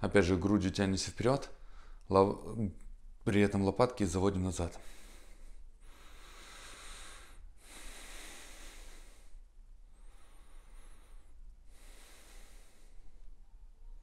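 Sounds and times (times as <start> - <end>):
man breathing through nose: 4.8 - 13.3.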